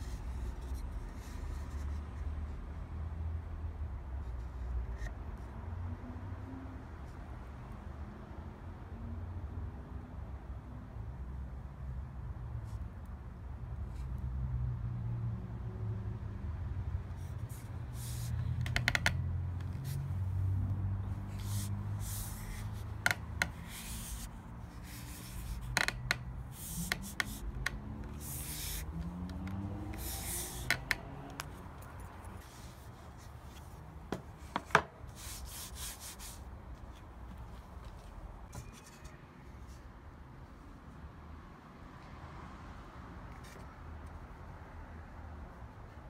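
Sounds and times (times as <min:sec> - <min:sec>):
leather brushing strokes: 0:21.2 - 0:27.5.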